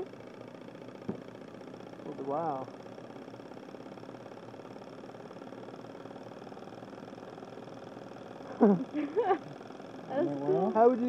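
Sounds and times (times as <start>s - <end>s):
small engine running rhythmically: 0.0s - 11.0s.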